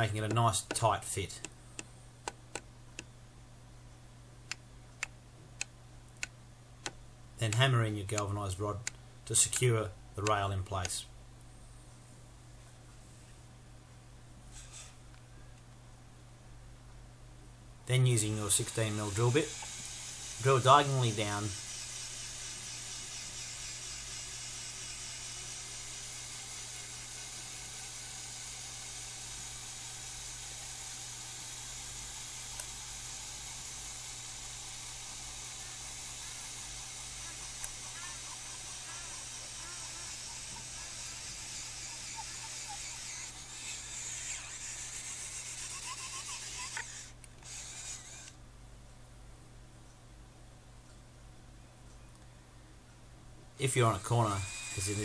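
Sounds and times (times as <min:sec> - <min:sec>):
steady hiss: 0:00.0 - 0:03.1, 0:14.4 - 0:15.1, 0:17.8 - 0:48.4, 0:53.6 - 0:55.0
electric drill boring through wood: 0:18.6 - 0:48.3, 0:53.8 - 0:55.0.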